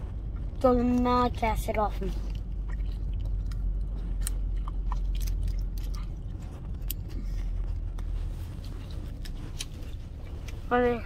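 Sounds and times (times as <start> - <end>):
low rumble of car cabin: 0.0 - 11.0
child chewing candy: 0.1 - 10.7.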